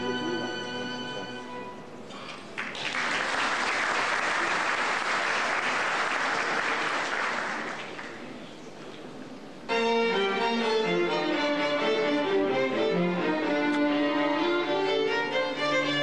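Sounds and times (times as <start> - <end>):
audience applauding: 2.5 - 8.4.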